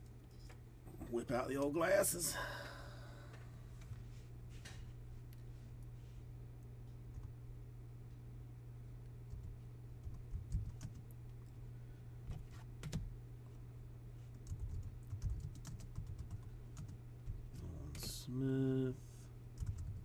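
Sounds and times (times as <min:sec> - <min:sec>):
steady low hum: 0:00.0 - 0:20.0
typing on computer keyboard: 0:09.3 - 0:11.1, 0:12.3 - 0:13.1, 0:14.4 - 0:18.1, 0:19.6 - 0:20.0.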